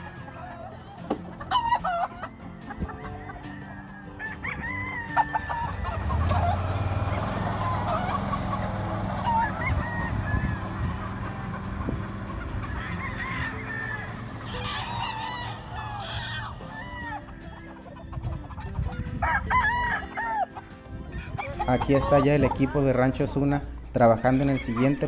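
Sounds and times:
roosters crowing and clucking: 0.0s - 25.0s
utility vehicle engine running: 5.7s - 15.9s.

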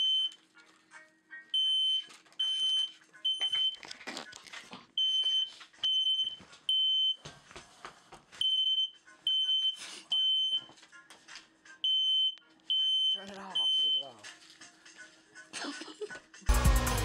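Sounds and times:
smoke alarm beeping: 0.0s - 0.4s, 1.5s - 3.8s, 5.0s - 7.2s, 8.4s - 10.7s, 11.8s - 14.2s.

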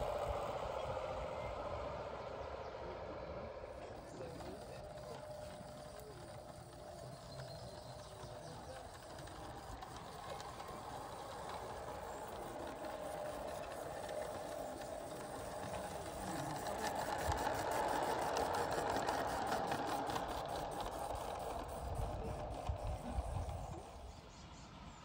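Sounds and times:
model train running and rattling: 0.0s - 25.0s
rapid even clicking: 3.8s - 23.9s.

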